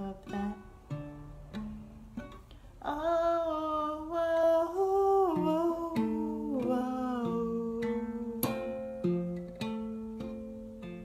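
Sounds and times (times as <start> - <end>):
woman singing: 0.0 - 1.0, 2.8 - 9.1
ukulele plucked notes: 0.0 - 11.0.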